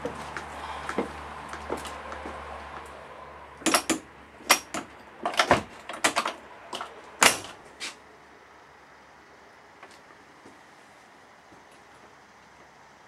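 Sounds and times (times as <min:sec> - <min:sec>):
sharp knocks and clicks: 0:03.6 - 0:07.5.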